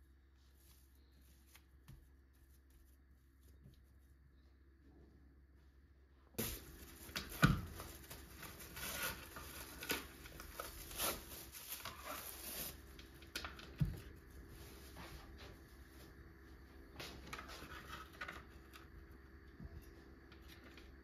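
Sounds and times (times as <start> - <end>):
plastic film crinkling: 6.4 - 15.0.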